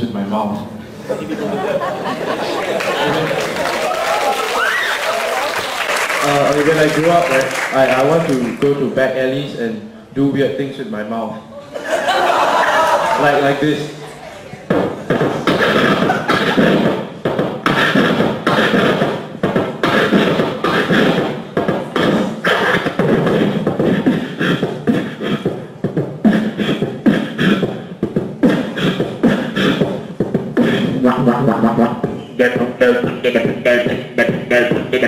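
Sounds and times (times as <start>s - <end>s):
person beatboxing: 6.2s - 9.6s, 14.6s - 35.0s
pitched vocal line: 12.6s - 27.8s, 28.4s - 35.0s.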